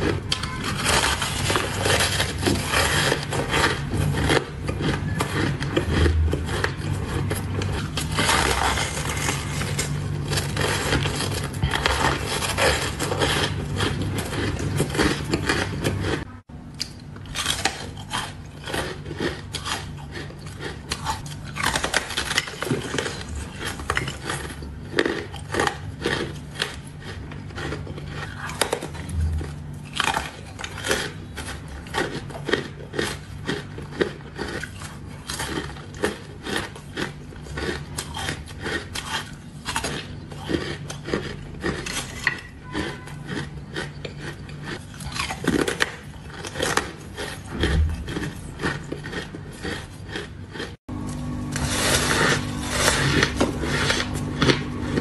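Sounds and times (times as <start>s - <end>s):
faint low hum: 0.0s - 36.4s
chewing crunchy ice: 0.0s - 55.0s.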